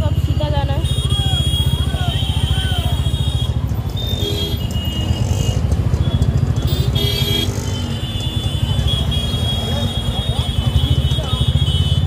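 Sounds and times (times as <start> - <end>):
motorcycle engine running: 0.0 - 12.0
street traffic: 0.0 - 12.0.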